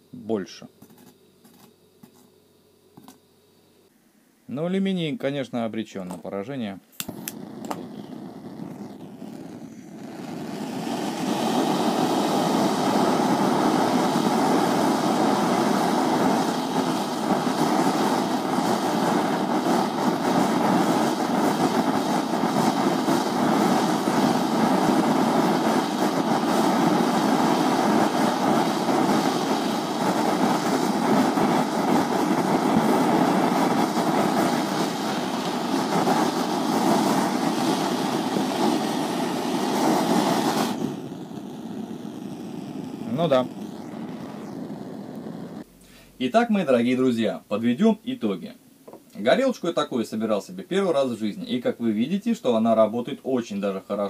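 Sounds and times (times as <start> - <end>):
torch flame hissing: 5.9 - 47.8.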